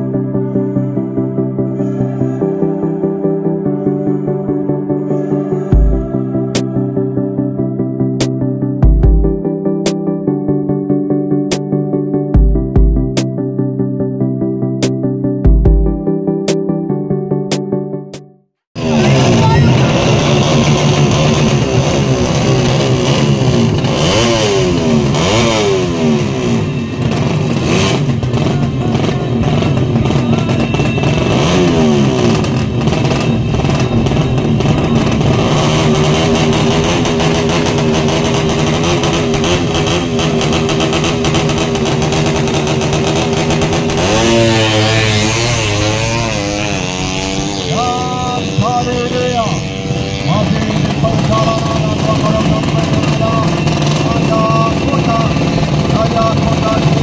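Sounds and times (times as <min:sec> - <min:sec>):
motorcycle engine revving: 0:18.7 - 0:57.0.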